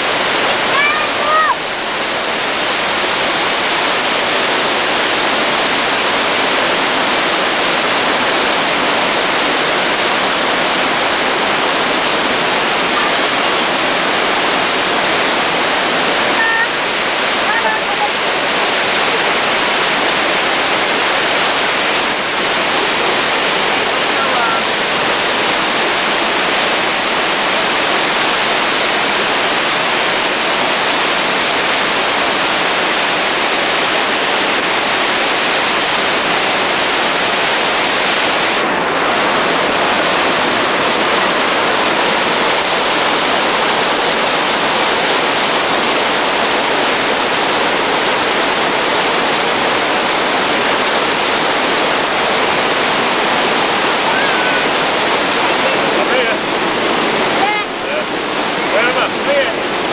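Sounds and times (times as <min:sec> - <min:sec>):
waterfall rushing onto rocks: 0:00.0 - 0:59.9.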